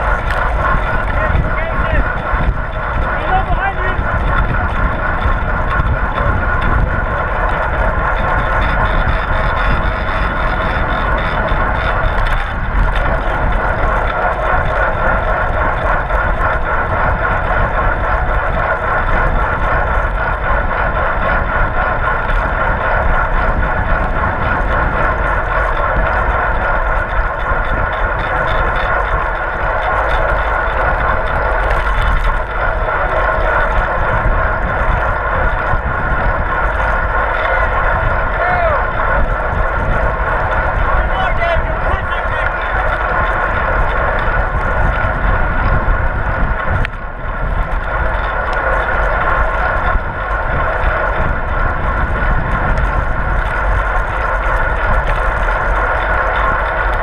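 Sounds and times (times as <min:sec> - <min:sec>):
road and bike noise: 0:00.0 - 0:57.0
wind buffeting microphone: 0:00.0 - 0:57.0.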